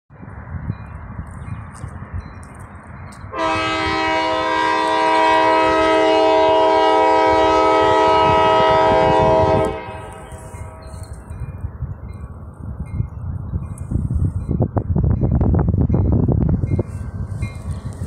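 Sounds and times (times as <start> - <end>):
wind rumbling on microphone: 0.1 - 18.0
locomotive air horn blast: 3.3 - 11.0.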